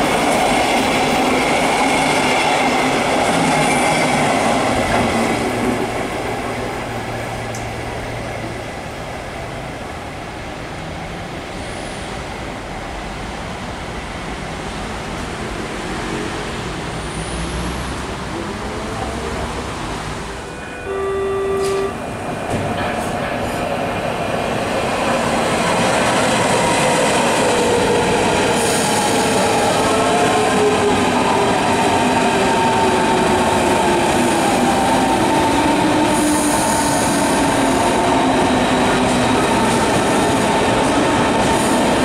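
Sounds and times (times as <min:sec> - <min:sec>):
train wheel noise and squeal: 0:00.0 - 0:09.1, 0:11.0 - 0:13.2, 0:20.4 - 0:42.0
short train horn note: 0:20.4 - 0:22.0.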